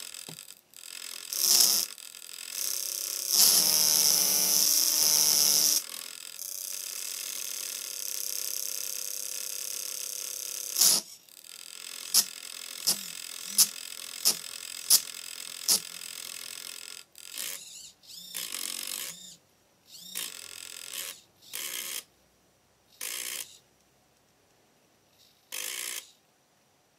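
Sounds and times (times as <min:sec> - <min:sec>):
servo clicks: 0:10.7 - 0:22.1.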